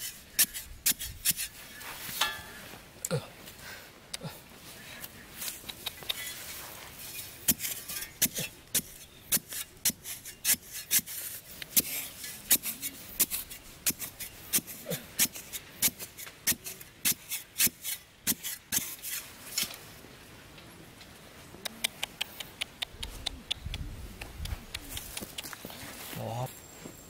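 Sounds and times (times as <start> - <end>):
wooden stick scraping sandy soil: 0.0 - 2.6, 5.4 - 19.8.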